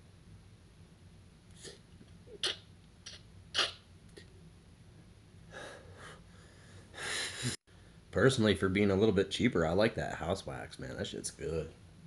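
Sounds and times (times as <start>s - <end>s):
man breathing: 5.5s - 8.0s.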